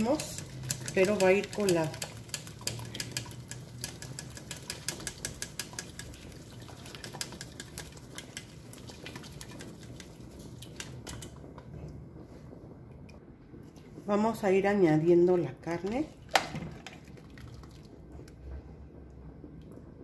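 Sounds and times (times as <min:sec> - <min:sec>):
spoon scraping metal strainer: 0:00.0 - 0:06.1.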